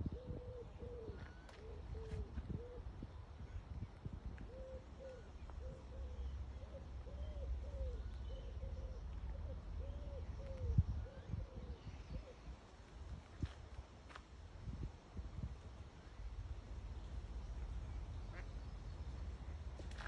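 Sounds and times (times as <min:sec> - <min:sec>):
pigeon cooing: 0:00.0 - 0:02.9, 0:04.5 - 0:11.8
wind rumble on microphone: 0:00.0 - 0:07.0, 0:09.0 - 0:20.0.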